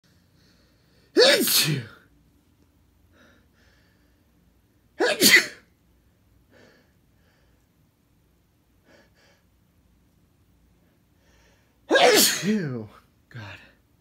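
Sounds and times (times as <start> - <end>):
man sneezing: 1.2 - 2.0, 5.0 - 5.6, 11.9 - 12.9.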